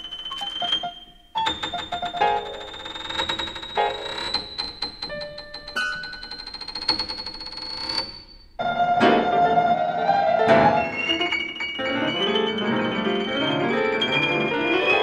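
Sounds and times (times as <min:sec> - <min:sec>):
dense piano chords: 0:08.6 - 0:15.0
slowly rising high tone: 0:08.6 - 0:15.0.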